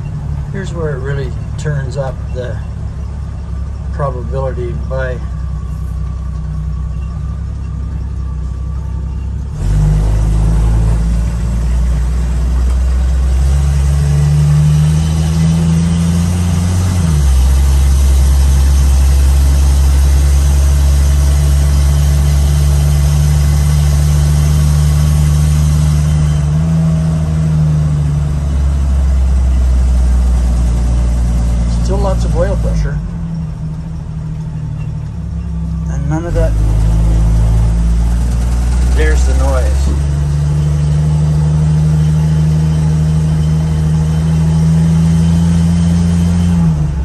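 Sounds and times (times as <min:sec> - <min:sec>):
car engine pulling away: 0:00.0 - 0:47.0.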